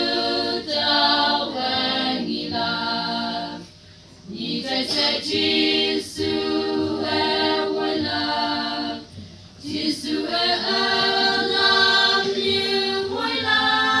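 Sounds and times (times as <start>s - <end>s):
women's choir singing a cappella: 0.0s - 14.0s
breath: 3.7s - 4.2s.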